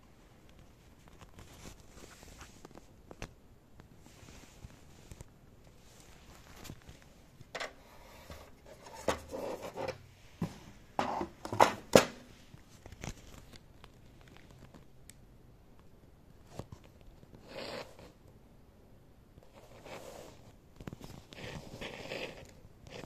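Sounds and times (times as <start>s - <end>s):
packaging handling scrapes and rustles: 19.5s - 23.0s.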